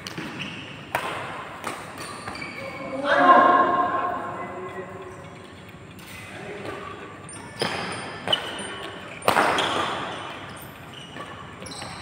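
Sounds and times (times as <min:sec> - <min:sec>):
rackets hitting shuttlecock: 0:00.0 - 0:02.8, 0:05.9 - 0:12.0.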